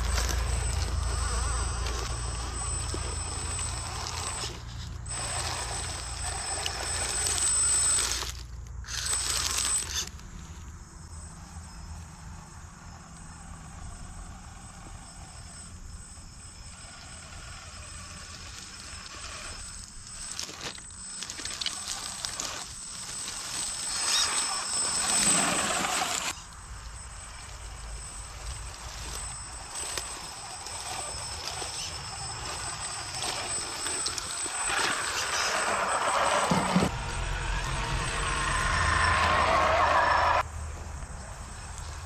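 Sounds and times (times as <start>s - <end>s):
tyres crunching dry leaves: 0.0s - 10.4s, 18.2s - 38.6s
electric motor whine: 0.0s - 42.0s.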